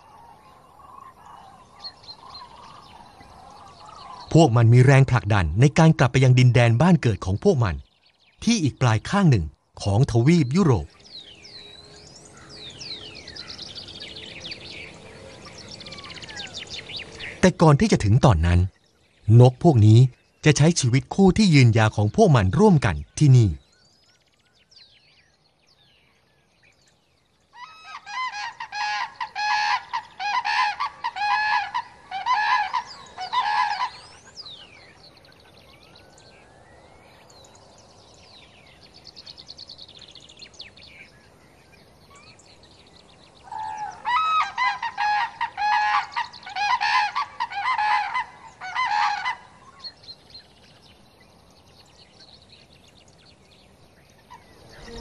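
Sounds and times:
cranes honking calls: 0:27.6 - 0:34.1, 0:43.5 - 0:49.8.

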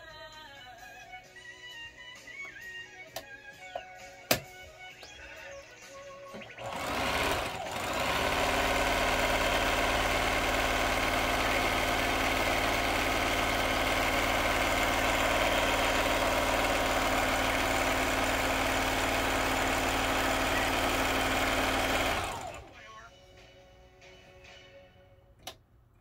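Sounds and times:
electric sewing machine running: 0:06.3 - 0:22.8.

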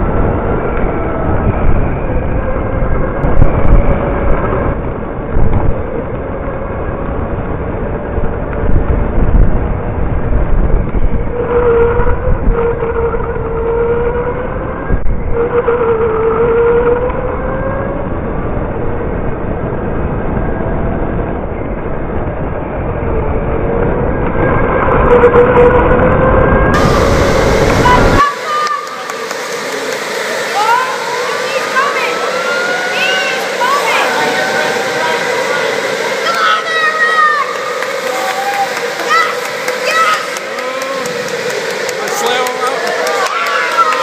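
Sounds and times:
wind buffeting camera: 0:00.0 - 0:13.5
low rumble: 0:00.0 - 0:15.5, 0:17.0 - 0:44.0
electric motor whine: 0:22.9 - 0:44.0.

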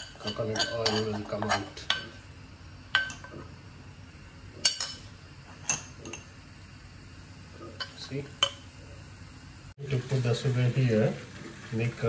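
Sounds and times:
metal spoon clinking on wok: 0:00.0 - 0:02.1.

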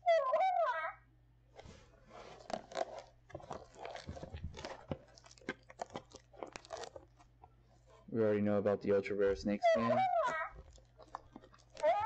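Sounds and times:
plastic shrink-wrap crinkling: 0:01.6 - 0:08.1, 0:10.2 - 0:12.0.

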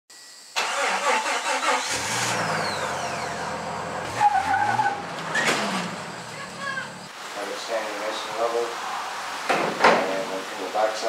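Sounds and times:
vehicle engine revving: 0:01.0 - 0:07.1.

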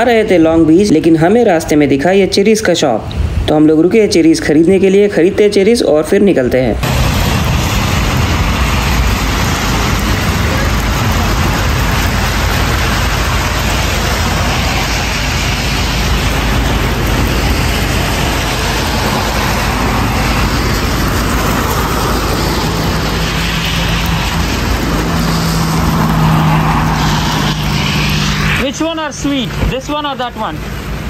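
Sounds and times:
outdoor rushing noise: 0:00.0 - 0:31.0
heavy low rumble: 0:06.6 - 0:31.0.

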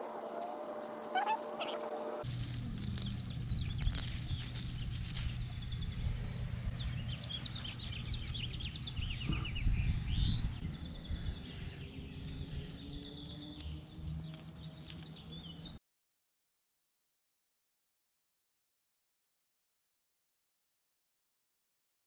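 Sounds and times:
low outdoor rumble: 0:00.0 - 0:15.5
hands pulling plants: 0:00.4 - 0:05.5
small birds chirping and trilling: 0:01.2 - 0:15.8.

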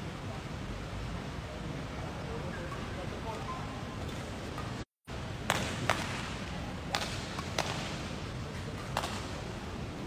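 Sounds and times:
hall background noise: 0:00.0 - 0:10.0
racket hitting shuttlecock: 0:05.5 - 0:08.0, 0:08.8 - 0:09.4.

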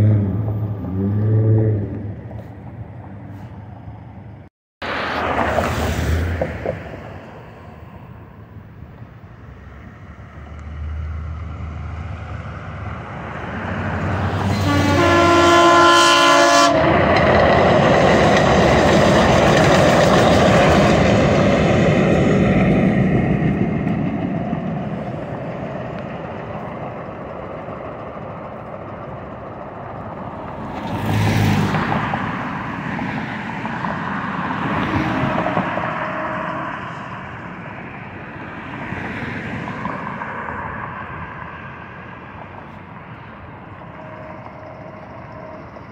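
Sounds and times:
road traffic passing: 0:00.0 - 0:45.9
train wheels rushing on rail: 0:08.9 - 0:45.9
train horn: 0:14.4 - 0:17.0, 0:34.9 - 0:37.2, 0:43.7 - 0:45.9.

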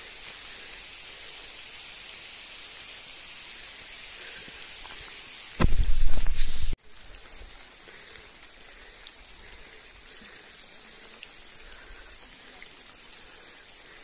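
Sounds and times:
steady rain falling: 0:00.0 - 0:14.0
raindrops ticking: 0:06.8 - 0:14.0.

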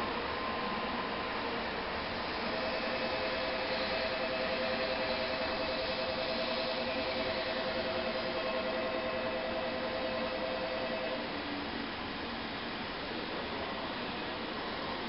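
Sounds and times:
constant hiss: 0:00.0 - 0:15.0
two-note electronic ringing: 0:02.4 - 0:11.2.

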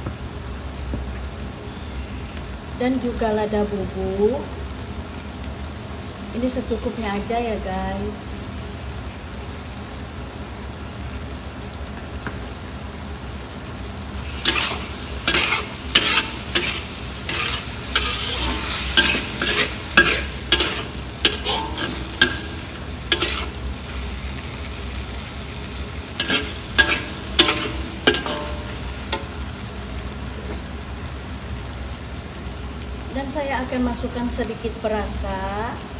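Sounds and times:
food sizzling in a wok: 0:00.0 - 0:35.9
metal spatula scraping a wok: 0:14.2 - 0:24.2, 0:26.1 - 0:29.4.

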